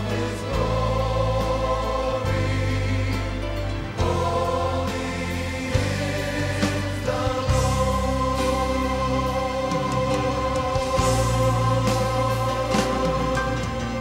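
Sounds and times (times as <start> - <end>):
choir singing held chords: 0.0 - 14.0.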